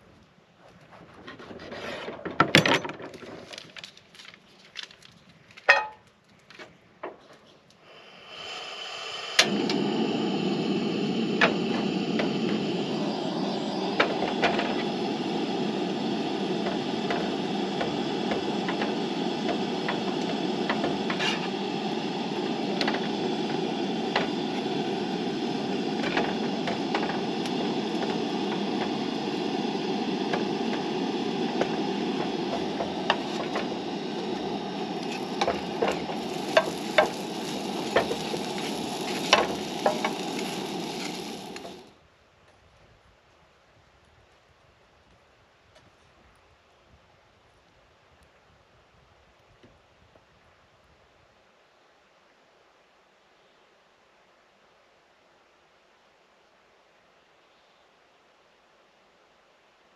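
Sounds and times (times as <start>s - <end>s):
gas burner rushing: 7.8s - 42.0s
food frying in a pan: 13.6s - 41.9s.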